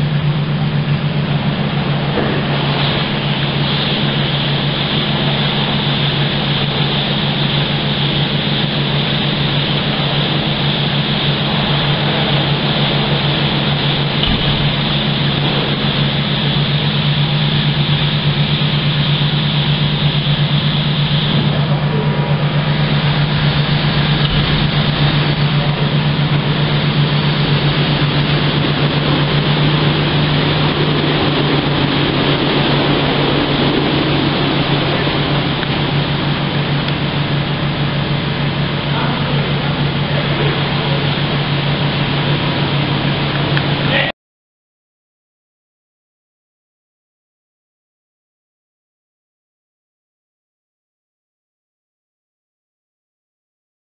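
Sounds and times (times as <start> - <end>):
brushes and water: 0.0 - 43.8
loud machine hum: 0.0 - 44.1
water spray hiss: 1.6 - 43.6.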